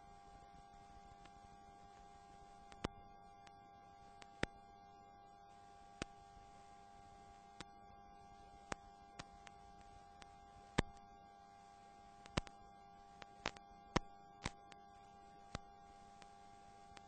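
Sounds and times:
faint steady hum: 0.0s - 17.0s
sharp clicks: 2.7s - 3.0s, 12.2s - 12.6s, 13.4s - 14.8s.

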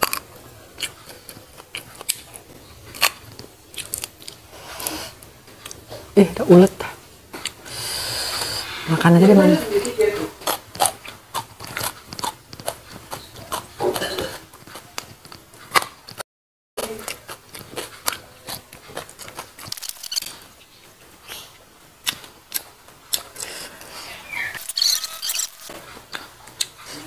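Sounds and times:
chewing and lip-smacking: 0.0s - 5.9s, 10.4s - 16.2s, 16.8s - 23.9s, 24.5s - 27.0s.

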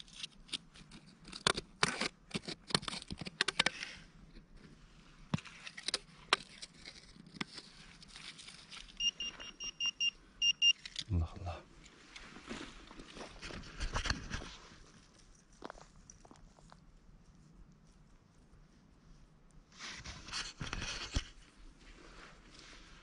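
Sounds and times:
hand rustling in soil and dry leaves: 6.5s - 9.4s
metal detector beeping: 9.0s - 10.9s.

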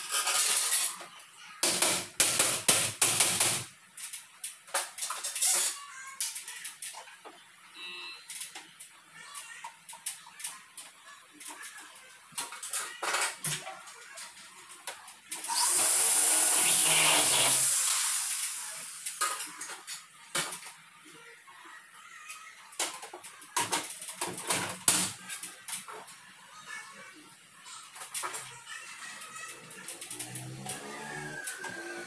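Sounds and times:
power drill running: 15.5s - 17.9s.

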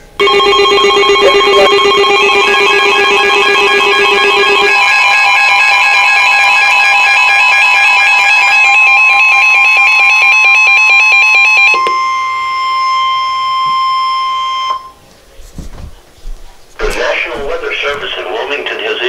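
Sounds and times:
electronic alarm beeping: 0.0s - 15.0s.

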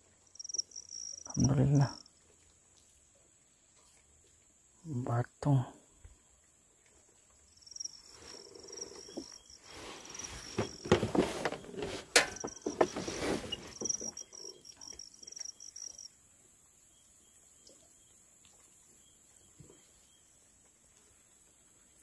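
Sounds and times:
high-pitched insect buzz: 0.3s - 2.1s
rustling and knocking of fish handled: 9.1s - 14.3s.

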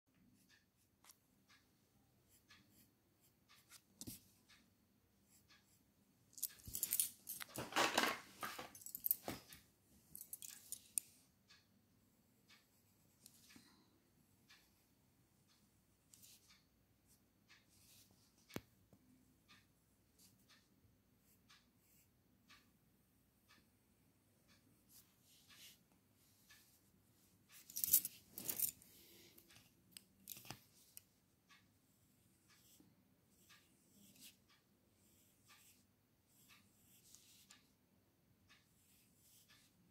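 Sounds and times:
pencil scratching on paper: 2.3s - 4.2s, 31.9s - 37.6s, 38.6s - 39.8s.

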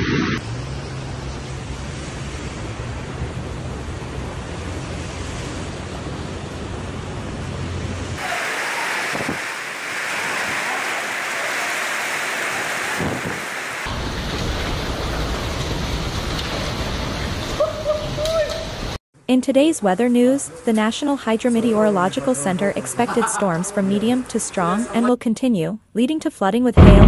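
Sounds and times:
heavy rain: 0.4s - 19.0s
wind buffeting microphone: 9.0s - 9.6s, 12.8s - 17.5s.

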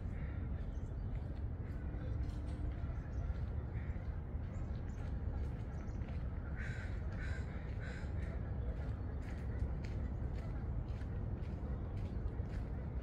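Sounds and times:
crow cawing: 6.6s - 8.1s.

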